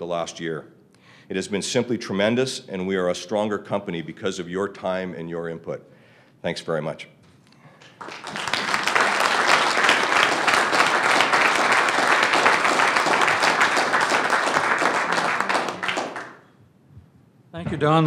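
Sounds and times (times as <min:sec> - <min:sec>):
audience applauding: 0:07.8 - 0:16.4.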